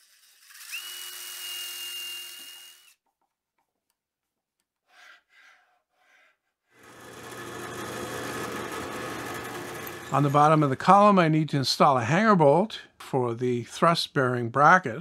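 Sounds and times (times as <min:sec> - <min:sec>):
cordless drill boring into wood: 0:00.0 - 0:03.0, 0:06.8 - 0:10.8
electric motor hum: 0:06.8 - 0:10.8.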